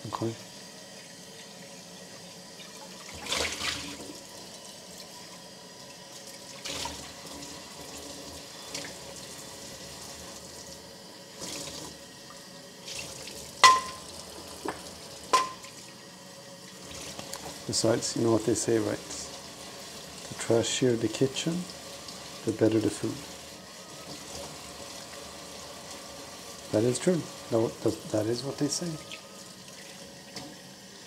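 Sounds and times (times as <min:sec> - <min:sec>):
tap running into sink: 0:12.9 - 0:15.8, 0:29.8 - 0:30.6.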